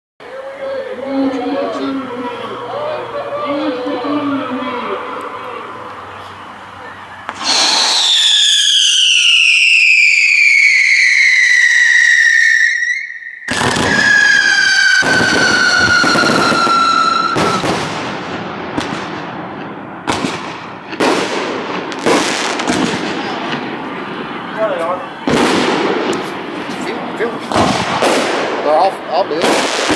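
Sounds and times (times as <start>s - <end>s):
fireworks whistling: 0.2s - 29.9s
firework bangs: 0.6s - 29.9s
hiss of sparks: 7.3s - 8.6s.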